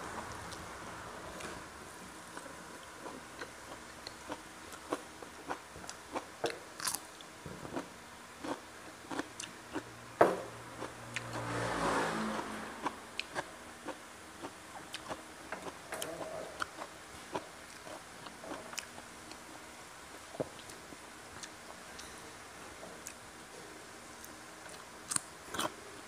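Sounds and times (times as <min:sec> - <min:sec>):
person chewing and crunching food: 0:02.3 - 0:09.9, 0:12.4 - 0:20.8, 0:24.2 - 0:25.8.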